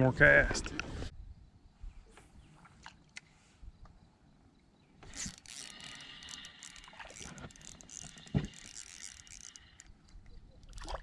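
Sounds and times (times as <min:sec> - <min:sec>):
fishing reel gears whirring: 0:05.0 - 0:11.0.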